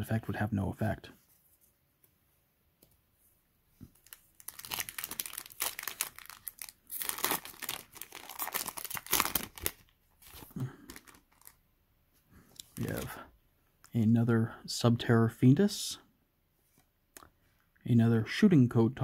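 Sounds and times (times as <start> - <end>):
foil wrapper tearing and crinkling: 4.0 - 11.6.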